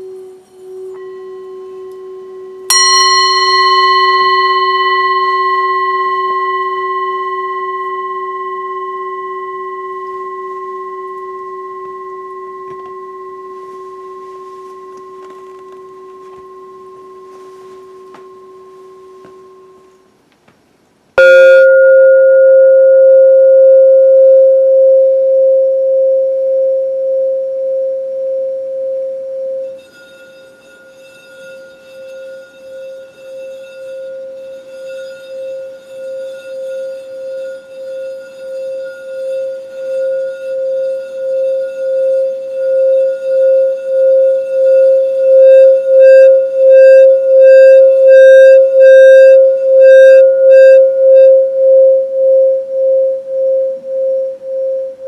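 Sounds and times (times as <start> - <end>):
pulsing higher overtone: 0.0 - 20.0, 21.2 - 24.8, 35.6 - 55.0
singing bowl ringing: 0.0 - 20.1, 21.2 - 55.0.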